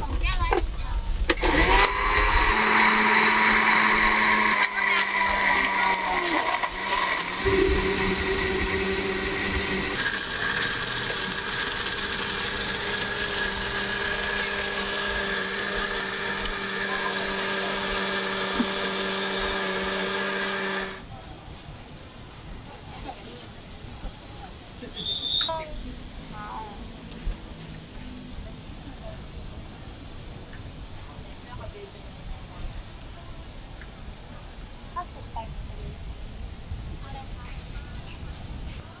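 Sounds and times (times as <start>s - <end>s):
blender crushing ice: 1.3s - 21.0s.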